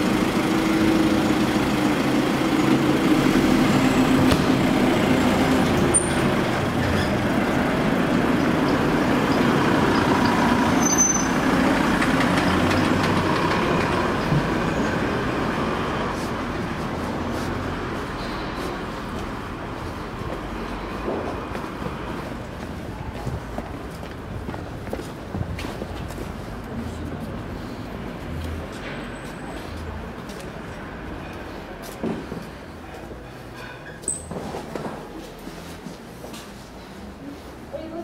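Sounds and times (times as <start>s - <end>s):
truck engine driving away: 0.0s - 22.2s.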